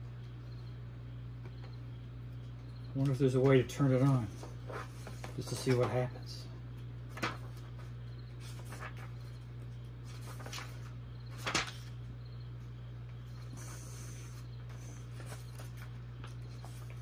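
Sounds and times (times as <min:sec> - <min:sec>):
steady low hum: 0:00.0 - 0:17.0
paper pages rustling: 0:04.0 - 0:06.0, 0:07.0 - 0:12.1, 0:13.4 - 0:17.0.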